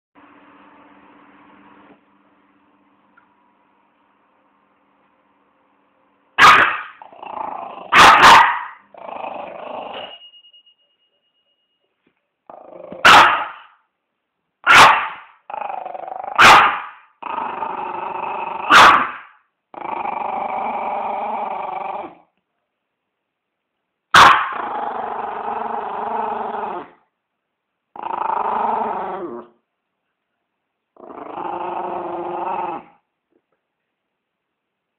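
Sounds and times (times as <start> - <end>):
dog barking: 6.4 - 7.0, 7.9 - 8.8, 13.0 - 13.8, 14.6 - 15.3, 16.4 - 17.0, 18.7 - 19.3, 24.1 - 24.6
dog growling: 7.0 - 8.0, 8.9 - 10.1, 12.5 - 13.1, 15.5 - 16.4, 17.2 - 18.7, 19.7 - 22.2, 24.4 - 27.0, 27.9 - 29.6, 31.0 - 33.0.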